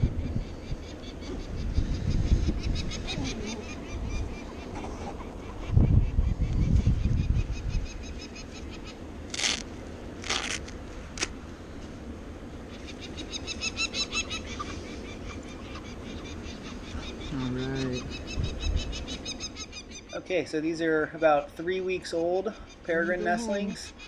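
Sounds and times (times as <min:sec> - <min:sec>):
short rasping noises: 0:09.3 - 0:11.4.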